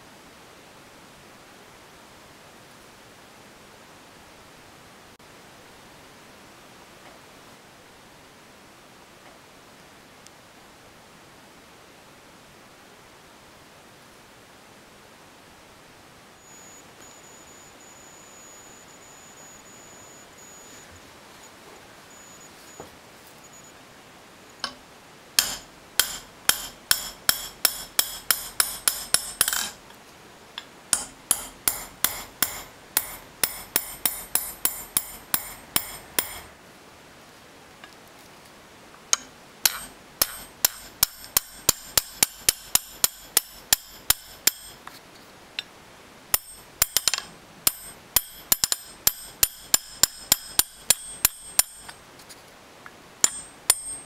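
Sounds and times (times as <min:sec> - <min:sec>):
hammer tapping steel punch: 0:25.4 - 0:29.8, 0:30.9 - 0:36.5, 0:39.1 - 0:44.8, 0:46.4 - 0:52.0, 0:53.2 - 0:54.0.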